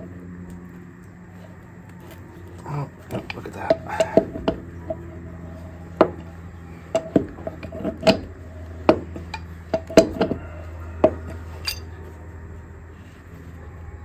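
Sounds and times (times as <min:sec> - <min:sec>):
low steady hum: 0:00.0 - 0:14.0
wrench clinking on wheel nuts: 0:06.0 - 0:08.3, 0:11.0 - 0:11.9.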